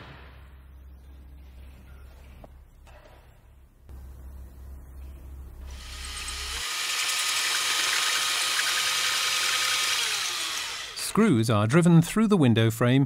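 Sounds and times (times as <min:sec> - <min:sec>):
electric drill boring: 0:05.7 - 0:11.1.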